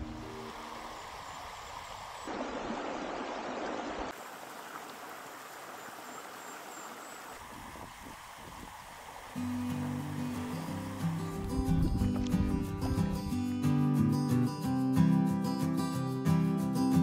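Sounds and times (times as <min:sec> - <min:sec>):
water rushing in creek: 0:00.0 - 0:13.2.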